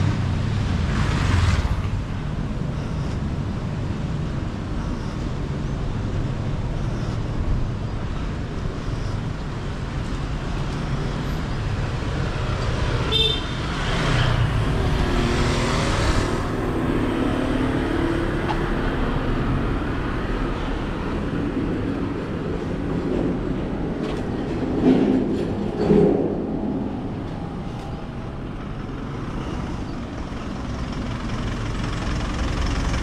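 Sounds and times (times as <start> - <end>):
street traffic rumble: 0.0 - 33.0.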